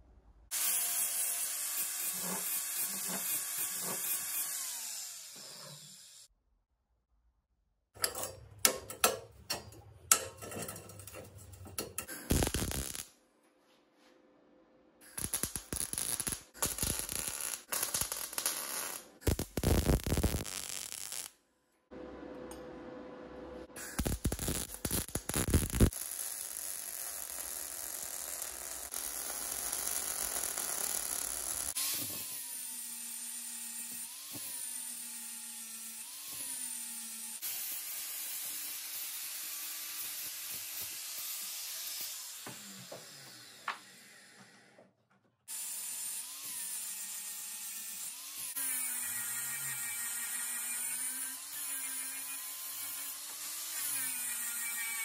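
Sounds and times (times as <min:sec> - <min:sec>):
angle grinder on steel: 0:00.5 - 0:06.3, 0:15.2 - 0:21.3, 0:23.8 - 0:35.1, 0:45.6 - 0:55.0.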